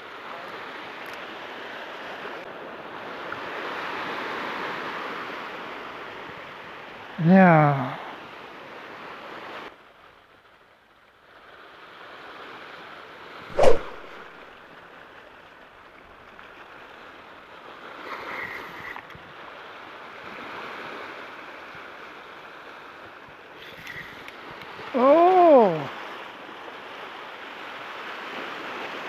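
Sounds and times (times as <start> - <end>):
surf washing against rocks: 11.7 - 29.0
sharp knock: 13.6 - 14.2.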